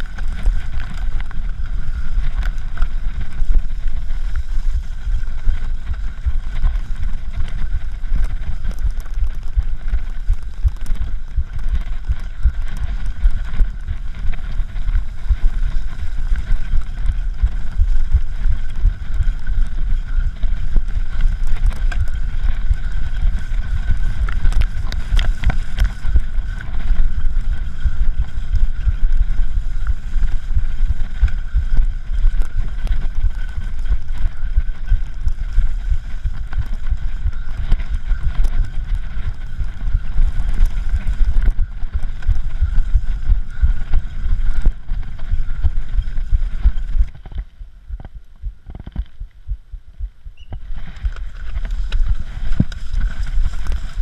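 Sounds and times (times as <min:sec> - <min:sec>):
bike rattling over bumpy grass: 0:00.0 - 0:49.4, 0:50.4 - 0:54.0
wind buffeting camera: 0:00.0 - 0:54.0.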